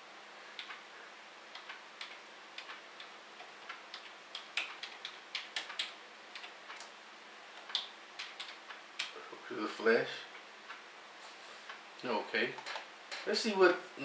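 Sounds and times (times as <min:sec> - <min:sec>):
keyboard typing clicks: 0:01.5 - 0:06.9, 0:07.6 - 0:09.2.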